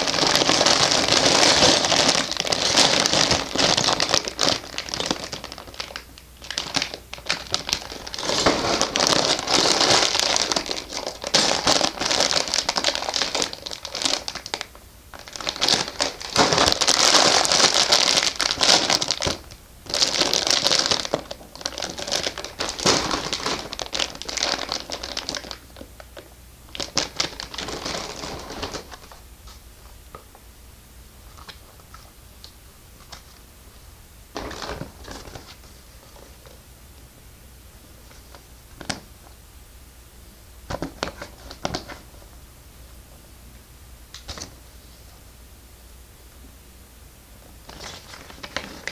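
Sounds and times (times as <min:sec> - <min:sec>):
plastic bags crinkling: 0:00.0 - 0:29.2, 0:34.3 - 0:36.6, 0:47.7 - 0:48.9.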